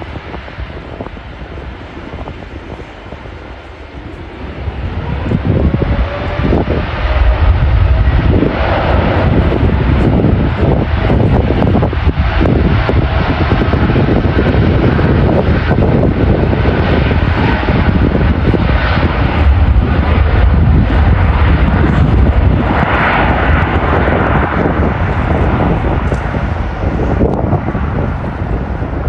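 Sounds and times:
jet engines at takeoff thrust: 0.0s - 29.0s.

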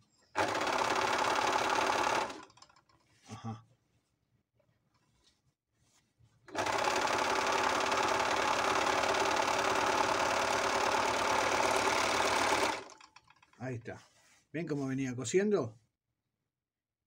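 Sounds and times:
overlock sewing machine sewing: 0.4s - 3.0s, 6.5s - 13.7s.

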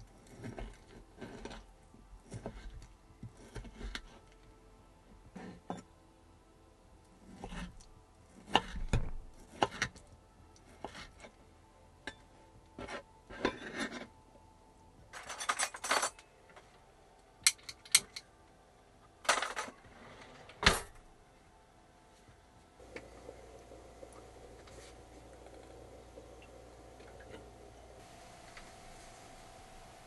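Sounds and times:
knife cutting on a board: 8.4s - 10.0s
utensils and pots clinking: 15.1s - 16.3s.

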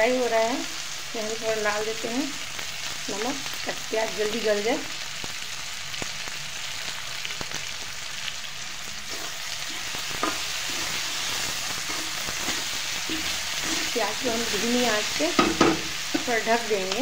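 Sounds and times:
onions sizzling in hot oil: 0.0s - 17.0s
metal spoon scraping and clicking: 11.8s - 13.9s.

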